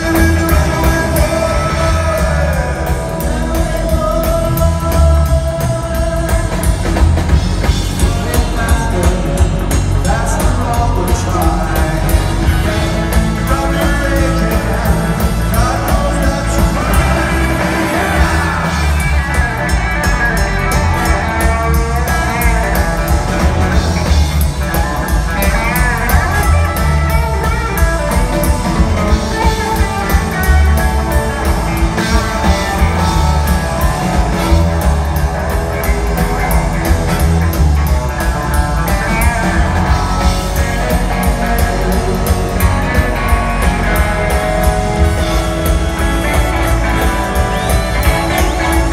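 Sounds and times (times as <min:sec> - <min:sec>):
person singing: 0:00.0 - 0:24.0
driving drum beat: 0:00.0 - 0:48.9
electric guitar: 0:00.0 - 0:48.9
horn section: 0:12.4 - 0:24.1, 0:38.9 - 0:48.9.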